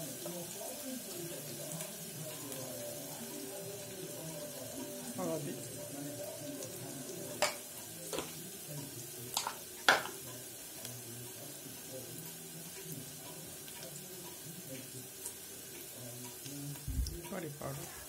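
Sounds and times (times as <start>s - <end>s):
onions sizzling in oil: 0.0s - 18.0s
spoon knocking against pot: 7.4s - 8.3s, 9.4s - 10.2s.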